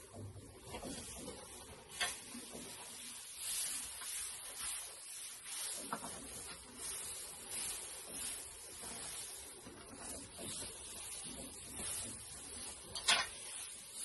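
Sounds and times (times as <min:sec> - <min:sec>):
hay rustling swishes: 0:00.0 - 0:14.0.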